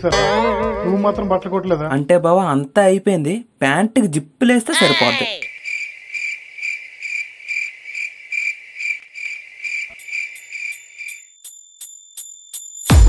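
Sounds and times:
cricket chirping: 4.8s - 12.9s.

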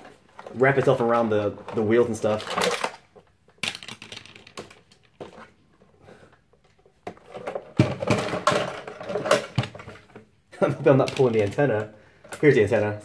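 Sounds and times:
plastic clicks: 2.2s - 5.5s.

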